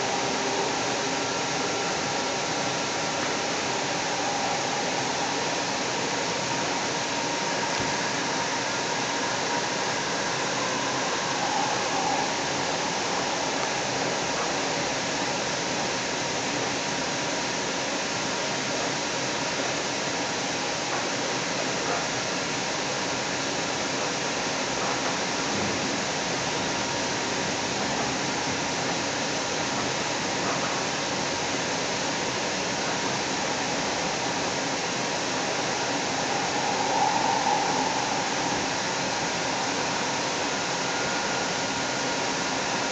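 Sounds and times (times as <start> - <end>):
train rushing noise: 0.0 - 17.5, 32.1 - 42.9
faint steady tone: 0.0 - 42.9
light rail car running: 0.0 - 42.9
high-pitched note: 35.3 - 42.9.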